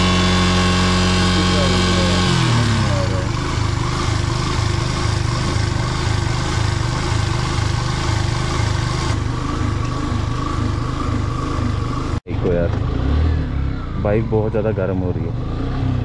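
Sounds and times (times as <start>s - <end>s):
motorcycle engine idling unevenly: 0.0s - 12.8s.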